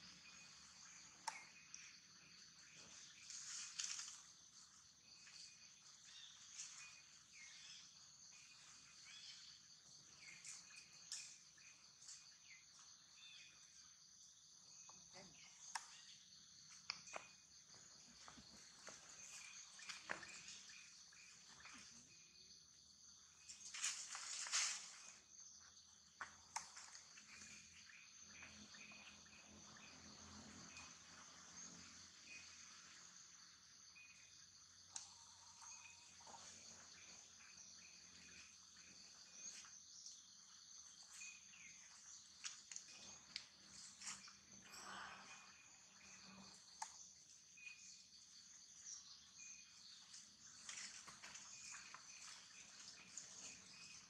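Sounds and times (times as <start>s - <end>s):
bird chirps: 0.0s - 13.8s, 18.2s - 22.4s, 23.4s - 54.0s
insect chorus: 0.0s - 54.0s
high-pitched insect hiss: 23.3s - 26.0s.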